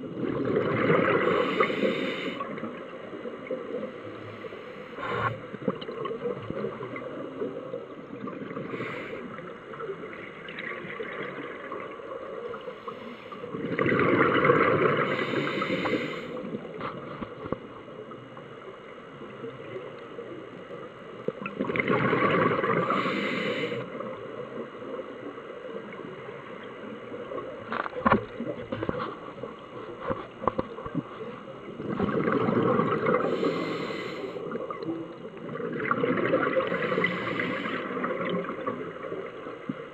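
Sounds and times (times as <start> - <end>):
exhaled bubbles underwater: 0.0 - 27.7, 30.4 - 39.9
regulator hiss: 1.2 - 2.6, 4.0 - 5.5, 8.6 - 9.8, 12.5 - 13.5, 15.0 - 16.6, 22.8 - 24.0, 33.2 - 34.6, 36.7 - 38.0.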